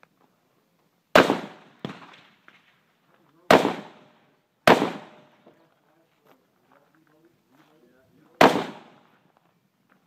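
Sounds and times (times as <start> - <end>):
rifle shots with echo: 1.1 - 2.5, 3.5 - 5.4, 8.4 - 9.1.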